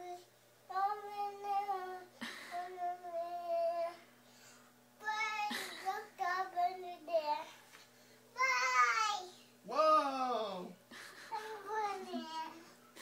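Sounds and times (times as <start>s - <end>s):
toddler singing: 0.0s - 4.0s, 8.4s - 9.4s.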